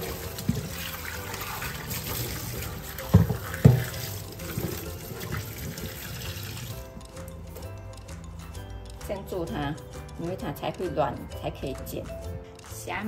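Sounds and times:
tap water running into bowl: 0.0s - 7.3s
hands rubbing and rinsing: 0.0s - 8.1s.

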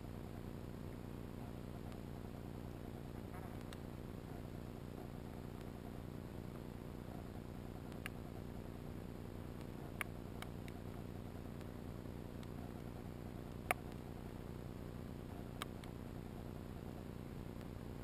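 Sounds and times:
sharp underwater clicks: 2.7s - 3.9s, 7.8s - 8.3s, 9.6s - 14.1s, 15.4s - 16.0s.

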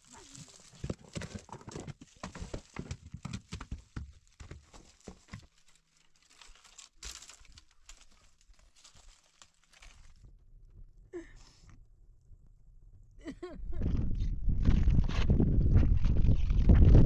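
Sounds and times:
footsteps on rocky gravel: 0.0s - 10.2s.

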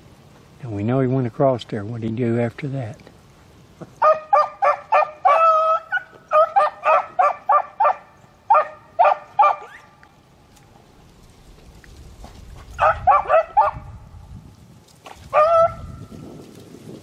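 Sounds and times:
hounds baying and barking: 3.8s - 10.0s, 12.6s - 14.0s, 15.3s - 15.9s.

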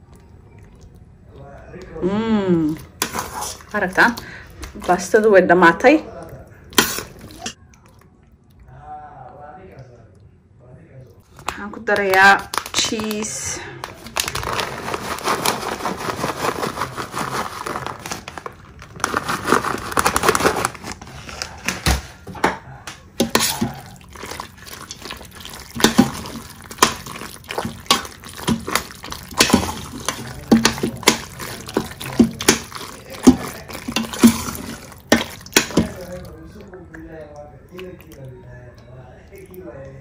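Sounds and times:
spoon stirring wet pasta: 0.0s - 2.0s, 2.6s - 9.0s, 11.1s - 18.4s, 23.2s - 40.0s
spoon scraping metal pot: 2.8s - 4.2s, 23.2s - 36.2s
grated cheese rustling: 14.3s - 18.4s, 23.2s - 36.5s.

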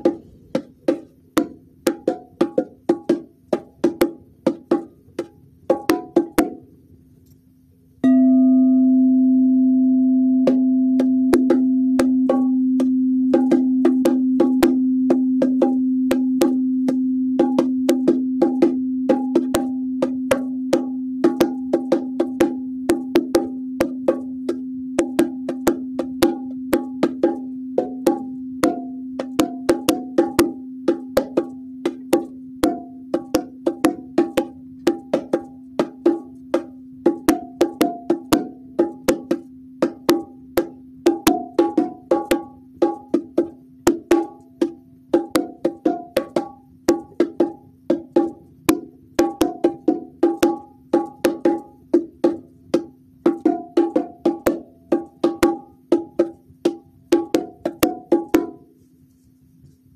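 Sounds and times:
bongo drums: 0.0s - 7.0s, 10.4s - 59.9s
sound bowl ringing: 8.0s - 34.7s.

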